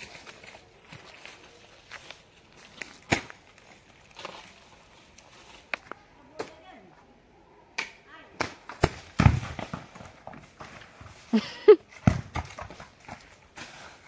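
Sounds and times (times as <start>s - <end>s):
footsteps on dry leaves: 0.0s - 6.1s
coconuts thudding onto ground: 2.8s - 3.6s, 7.8s - 11.1s, 11.9s - 13.3s.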